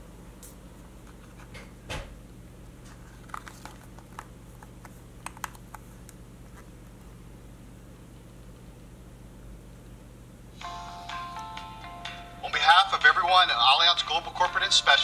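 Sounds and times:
steady low hum: 0.0s - 15.0s
fingers clicking and tapping on card: 3.2s - 6.2s.

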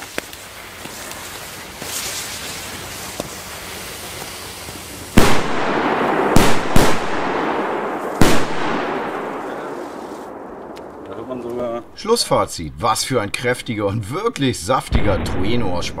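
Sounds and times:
burning fuses hissing: 0.0s - 7.2s
firecracker bangs with echo: 5.1s - 11.6s.

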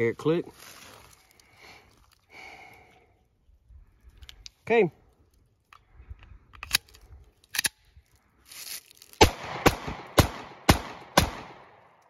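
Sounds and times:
pistol handling clicks: 6.5s - 7.8s
pistol shots with echo: 9.2s - 11.8s.

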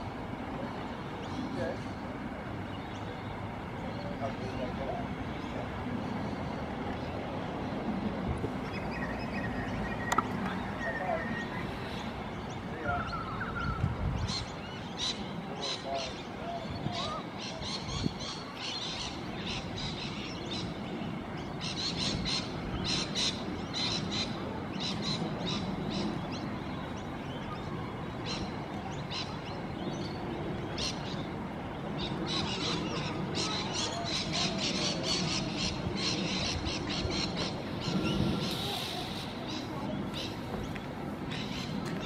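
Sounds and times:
birds squawking and chirping: 8.6s - 42.0s.

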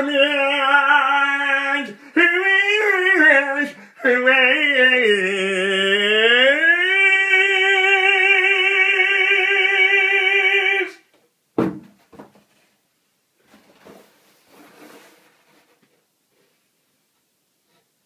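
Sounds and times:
man singing long note: 0.0s - 11.0s
thud: 11.6s - 12.4s
faint rustling and handling: 13.4s - 18.0s.

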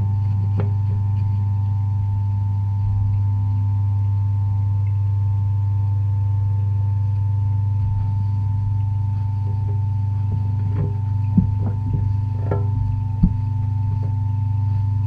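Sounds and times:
washing machine motor hum: 0.0s - 15.0s
knock: 10.8s - 13.4s.

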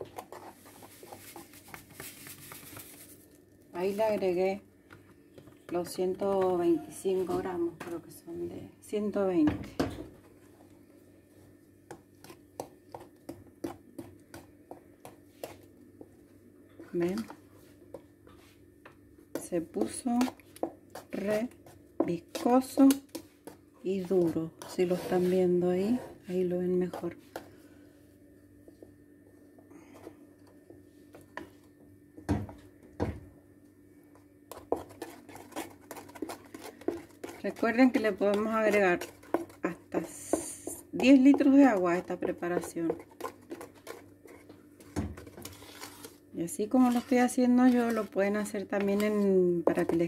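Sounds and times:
spoon stirring thick paste: 0.0s - 8.2s, 10.2s - 27.9s, 28.6s - 32.8s, 34.1s - 50.0s
wooden spoon knocking metal pot: 36.8s - 43.6s.

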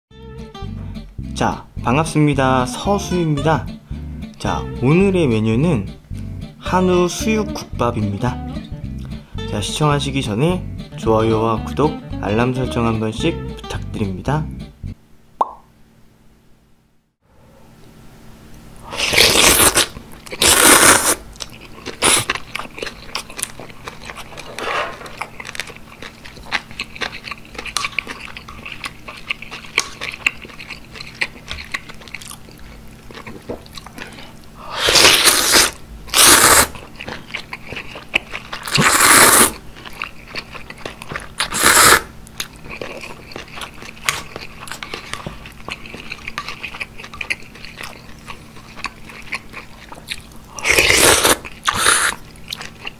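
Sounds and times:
loud noodle slurps: 18.9s - 21.2s, 34.7s - 36.8s, 38.7s - 39.6s, 41.4s - 42.1s, 50.6s - 52.2s
wet chewing: 19.0s - 52.9s.

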